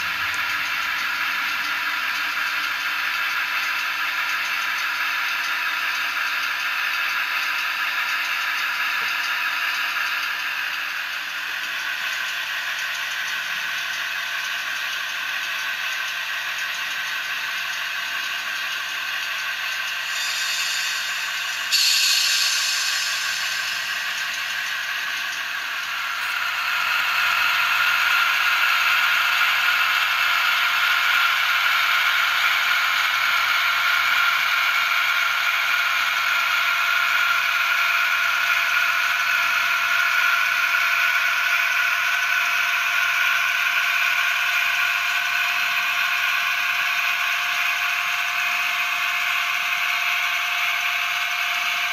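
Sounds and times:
model train diesel engine sound: 0:00.0 - 0:51.9
air hiss: 0:20.0 - 0:24.7.

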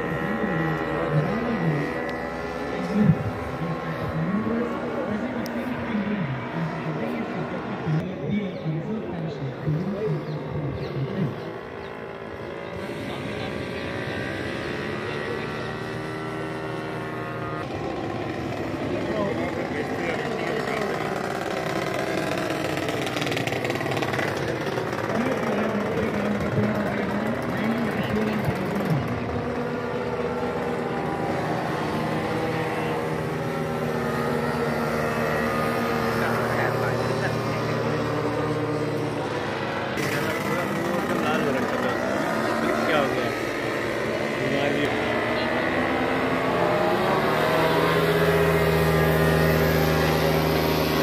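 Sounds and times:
paramotor engine droning: 0:00.0 - 0:51.0.

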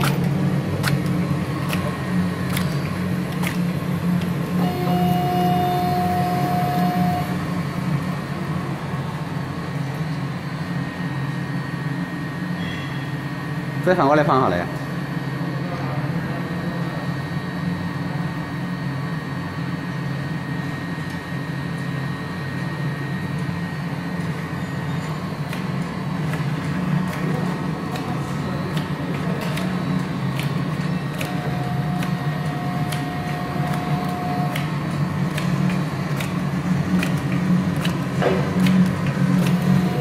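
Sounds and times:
conveyor drone: 0:00.0 - 0:14.0, 0:16.2 - 0:40.0
steady machine whine: 0:00.0 - 0:40.0
sharp labeling machine clicks: 0:25.4 - 0:40.0.

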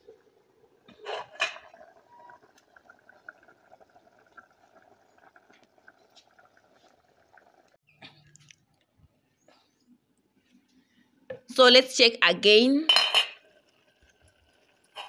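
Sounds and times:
pot boiling and bubbling: 0:00.0 - 0:08.5, 0:13.2 - 0:15.0.

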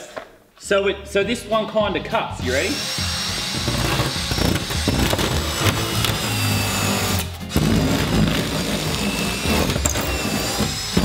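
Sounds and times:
background music: 0:00.6 - 0:11.0
cordless drill running: 0:02.6 - 0:11.0
spinner grinding into styrofoam: 0:02.8 - 0:11.0.

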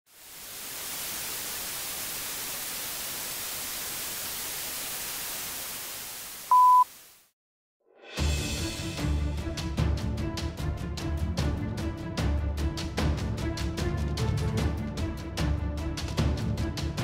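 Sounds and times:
television static hiss: 0:00.1 - 0:07.3
high countdown beep: 0:06.5 - 0:06.8.

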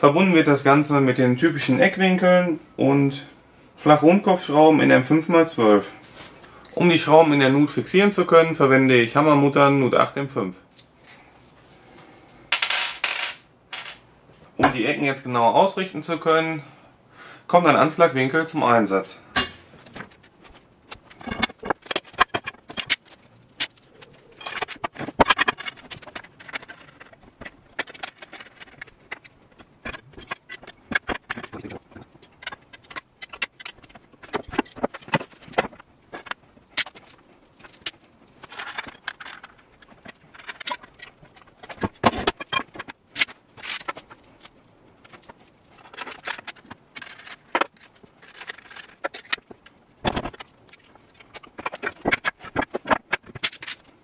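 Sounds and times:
small metal parts clinking: 0:20.9 - 0:54.0.

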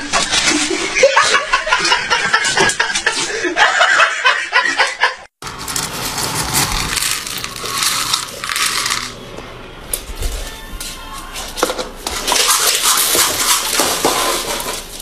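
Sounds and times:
pet food kibble rattling: 0:05.5 - 0:09.2.

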